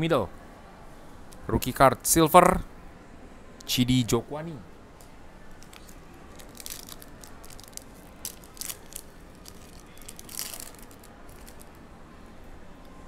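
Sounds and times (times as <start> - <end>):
foil wrapper tearing and crinkling: 5.7 - 11.7.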